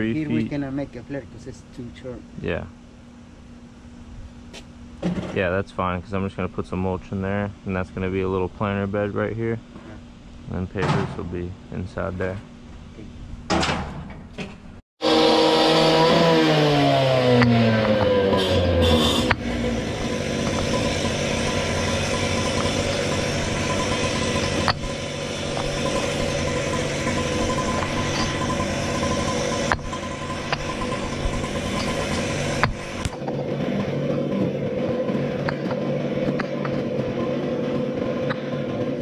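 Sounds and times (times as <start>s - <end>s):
engine running: 15.0s - 39.0s.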